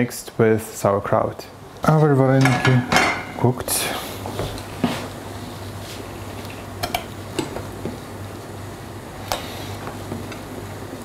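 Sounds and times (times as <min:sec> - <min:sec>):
utensil clinking against pot: 0:02.4 - 0:03.5.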